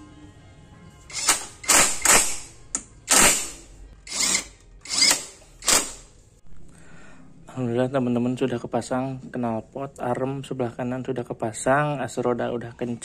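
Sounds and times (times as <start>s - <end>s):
impact wrench bursts: 1.1s - 6.1s.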